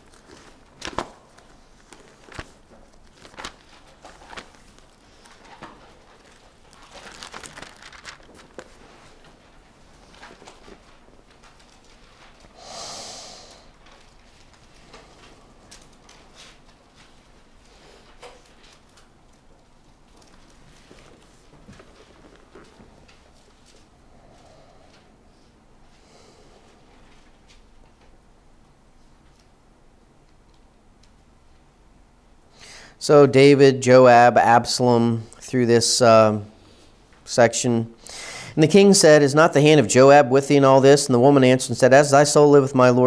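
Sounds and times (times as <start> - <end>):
book pages rustling: 0.0 - 12.5, 20.1 - 23.9.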